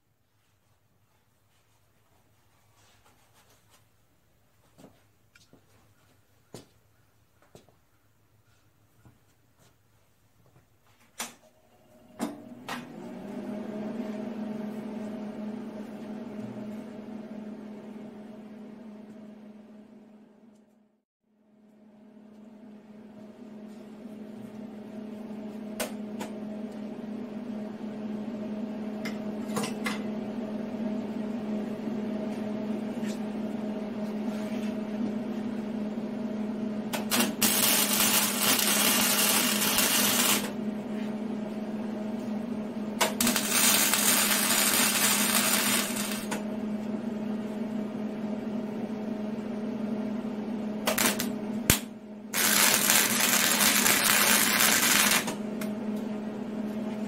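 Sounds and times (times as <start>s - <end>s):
steady hum: 30.2s - 57.0s
welding arc crackle: 37.0s - 40.5s, 43.0s - 46.4s, 50.9s - 55.4s.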